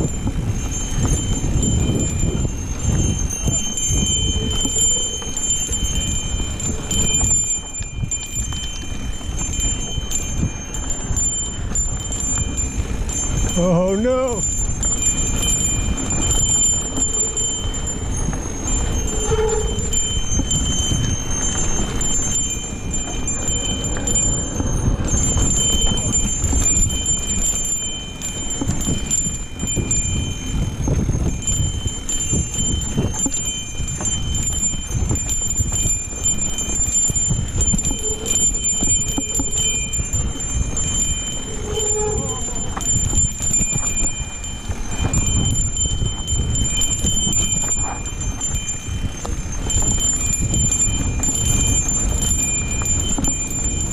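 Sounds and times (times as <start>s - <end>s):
bike tyres rumbling over dirt: 0.0s - 13.6s, 14.4s - 53.9s
bike chain and frame rattling: 0.0s - 53.9s
wind on microphone: 0.0s - 53.9s
thin high whine: 13.6s - 27.0s, 36.8s - 44.4s.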